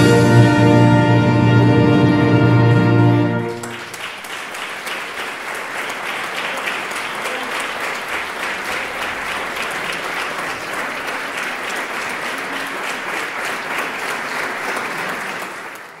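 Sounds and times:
audience applauding: 3.4s - 16.0s.

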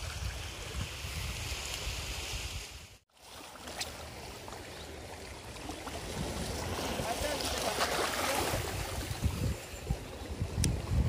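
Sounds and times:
wind rumbling on microphone: 0.0s - 3.0s, 8.3s - 11.0s
calm sea water washing: 0.0s - 10.9s.

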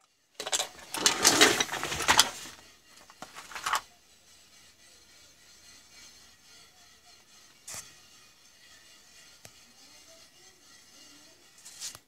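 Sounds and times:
electronic components rattling: 0.0s - 4.0s.

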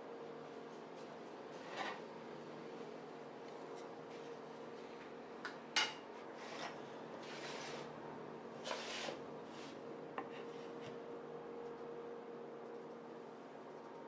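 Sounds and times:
wood scraping over tabletop: 6.4s - 7.9s, 8.6s - 9.8s.

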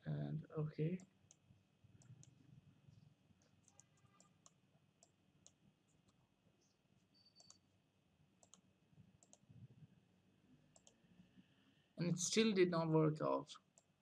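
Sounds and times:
computer mouse clicks: 1.0s - 1.4s, 2.0s - 2.4s, 3.6s - 6.2s, 7.2s - 7.6s, 8.4s - 9.5s, 10.7s - 11.1s, 13.7s - 14.0s.

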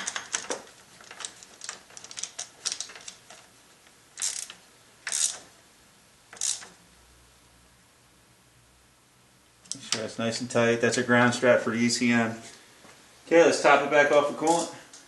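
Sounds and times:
hand ratchet clicking: 4.2s - 5.4s, 6.3s - 6.7s.

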